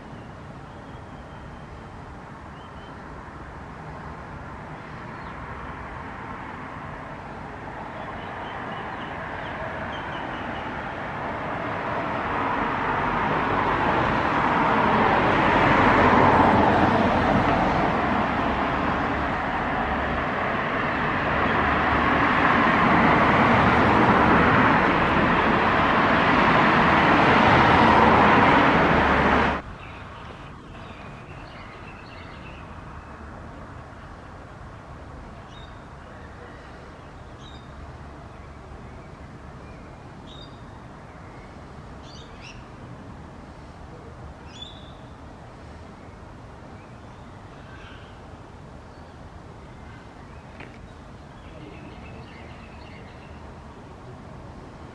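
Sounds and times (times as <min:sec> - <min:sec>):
faint bird chirps: 0:00.0 - 0:01.9, 0:02.5 - 0:03.0
road traffic: 0:00.0 - 0:54.9.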